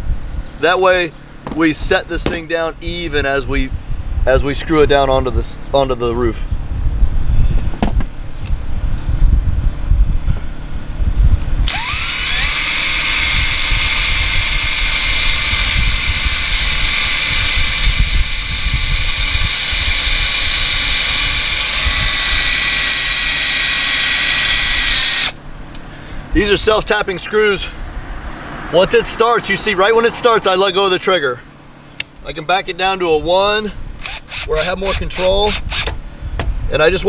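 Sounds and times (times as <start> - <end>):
cordless drill whining: 11.6 - 25.4, 34.0 - 36.0
screw driven into sheet metal: 11.7 - 25.4.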